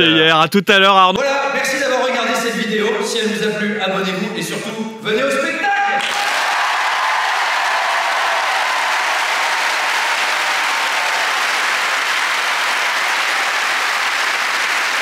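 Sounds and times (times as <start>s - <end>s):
audience applauding: 6.0s - 15.0s.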